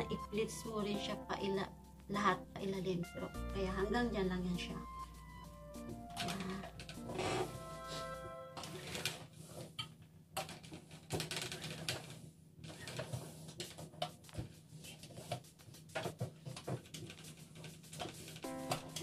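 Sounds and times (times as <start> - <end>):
iron scraping over fabric: 7.0 - 9.6.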